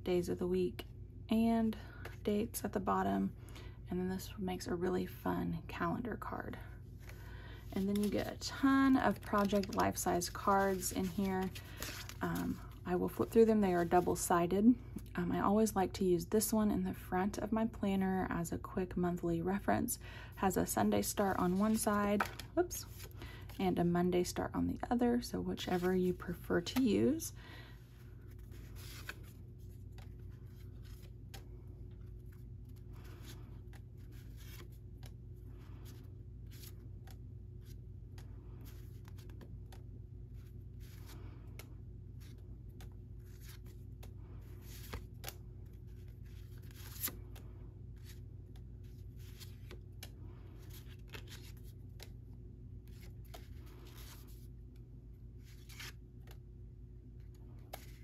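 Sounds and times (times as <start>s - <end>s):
cards flipped by hand: 7.8s - 8.4s, 9.1s - 13.2s, 21.5s - 23.6s, 25.6s - 26.9s, 28.2s - 54.8s, 55.4s - 56.5s, 57.2s - 58.0s.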